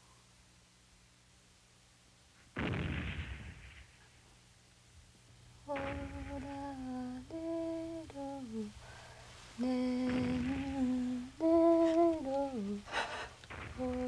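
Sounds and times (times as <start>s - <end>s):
person humming a slow tune: 5.6s - 8.9s, 9.6s - 14.0s.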